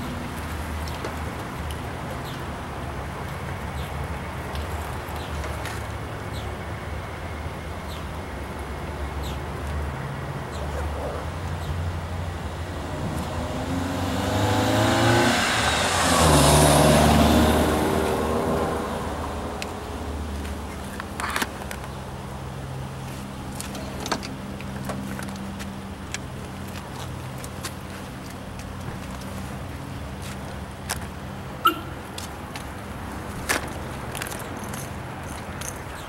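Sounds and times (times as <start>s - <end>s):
vehicle driving past: 11.9s - 19.6s.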